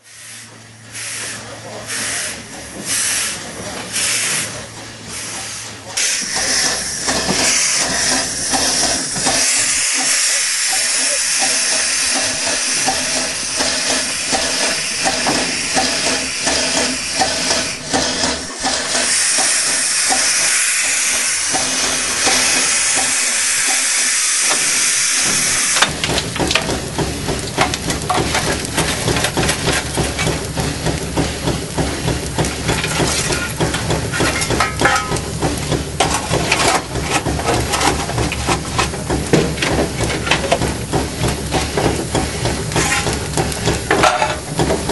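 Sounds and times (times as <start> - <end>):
steam locomotive hissing: 0.0 - 44.9
low rumble with clanks: 25.3 - 44.9.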